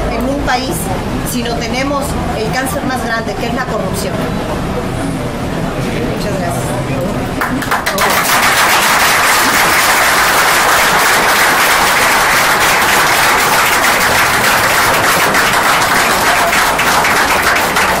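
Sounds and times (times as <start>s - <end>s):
group applauding: 7.4s - 18.0s.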